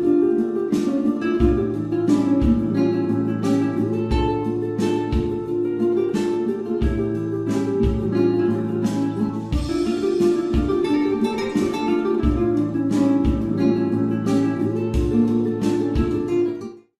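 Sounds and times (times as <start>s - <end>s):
plucked guitar music: 0.0s - 16.9s
low drum hits: 9.5s - 12.6s.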